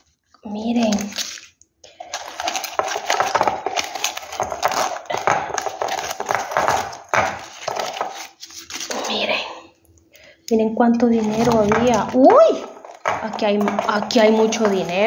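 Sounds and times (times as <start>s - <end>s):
paper banknotes rustling: 0.7s - 9.0s.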